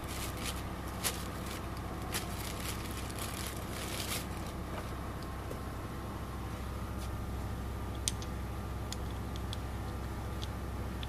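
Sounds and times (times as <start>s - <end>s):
plastic bag crinkling: 0.0s - 4.6s
steady low hum: 0.0s - 11.0s.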